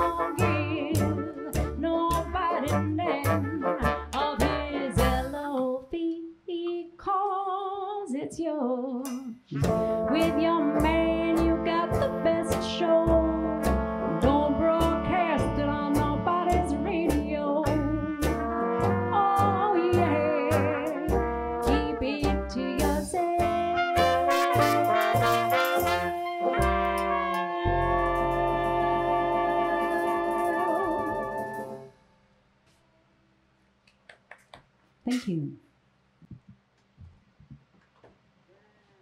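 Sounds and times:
jazz band playing: 0.0s - 5.5s, 9.5s - 31.9s
upright bass beat: 0.0s - 5.5s, 9.5s - 28.4s
horns holding long notes: 9.5s - 16.4s, 23.4s - 31.9s.

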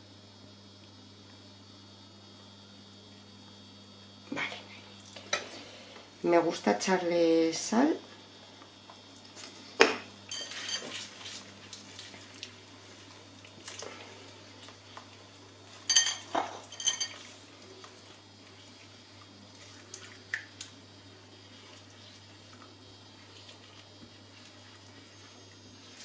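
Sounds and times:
utensils clinking on crockery: 10.3s - 11.1s, 15.8s - 17.4s.

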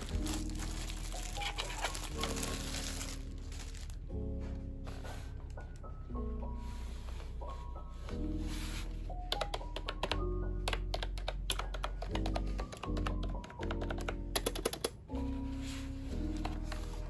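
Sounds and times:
soft background music: 0.0s - 17.0s
clicky keyboard typing: 9.3s - 15.0s.

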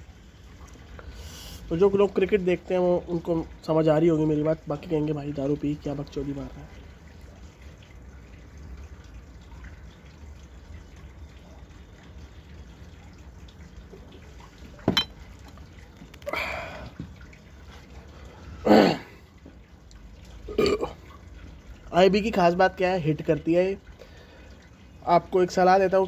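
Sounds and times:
breathy exhale: 1.0s - 1.7s
glass clink: 14.8s - 15.2s.

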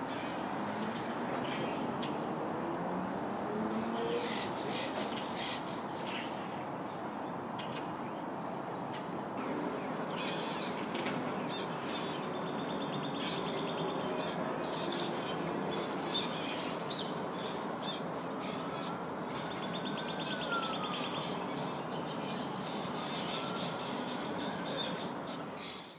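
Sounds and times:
outdoor background noise: 0.0s - 25.9s
birds chirping and calling: 10.1s - 25.9s.

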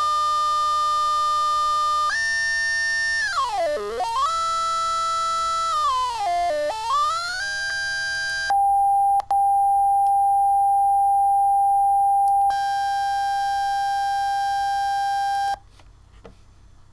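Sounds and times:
synthesized buzzy tone: 0.0s - 9.2s, 12.4s - 15.6s.

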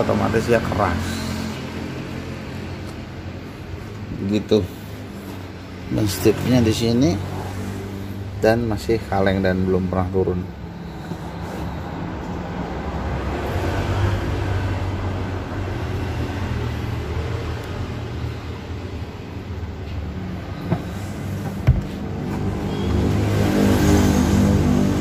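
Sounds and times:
vehicle engine humming: 10.1s - 25.0s.

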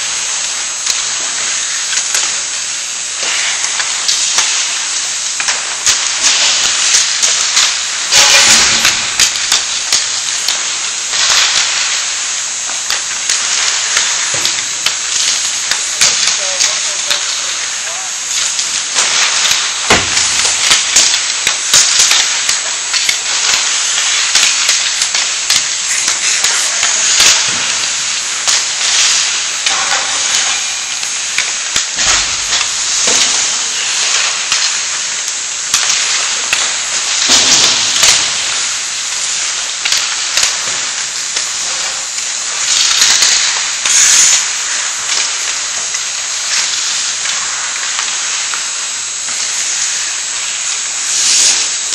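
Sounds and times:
hockey sticks and puck clacking: 3.2s - 10.6s, 15.2s - 23.7s, 24.3s - 35.1s
skates scraping on ice: 22.0s - 35.6s, 51.1s - 51.9s.

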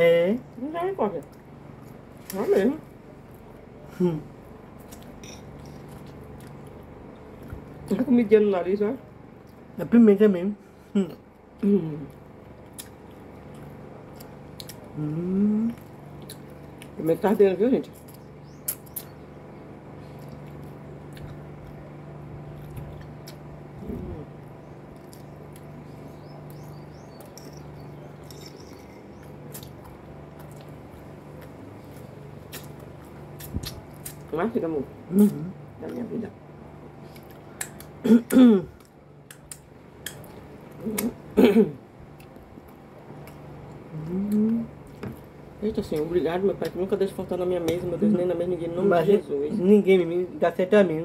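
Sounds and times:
steady low hum: 0.0s - 51.0s
chewing and mouth noises: 1.1s - 8.0s, 11.2s - 17.0s, 17.9s - 34.5s, 36.9s - 41.3s, 42.0s - 46.9s
person humming while eating: 3.9s - 4.4s, 10.9s - 12.2s, 14.9s - 15.9s, 23.7s - 24.4s, 40.8s - 41.2s, 43.8s - 44.8s
eating clicks: 37.1s - 41.2s.

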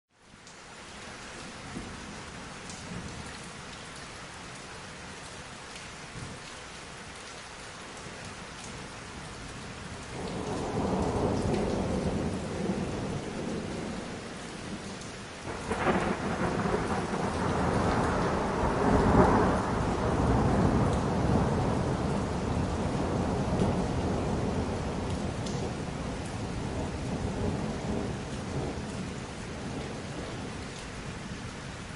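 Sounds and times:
rain hissing: 0.2s - 31.9s
thunder rumbling: 10.1s - 31.2s.

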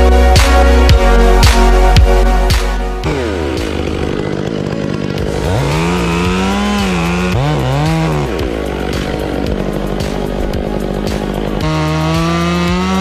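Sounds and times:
chainsaw idling and revving: 0.0s - 13.0s.

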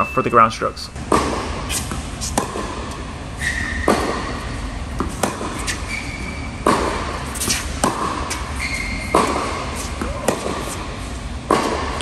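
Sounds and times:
tennis racket hitting ball: 1.0s - 3.0s, 3.8s - 12.0s
sneakers squeaking on court: 3.4s - 10.8s.

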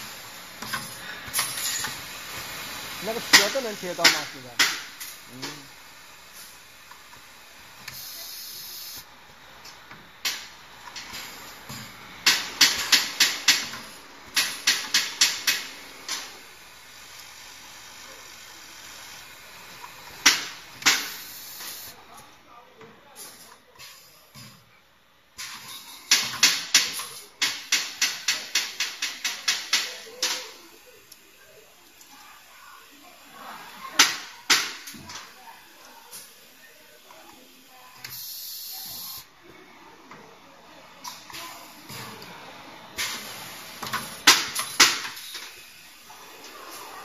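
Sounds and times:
compressed air hiss: 0.0s - 6.6s, 7.8s - 9.1s, 10.2s - 22.0s, 38.0s - 39.3s.

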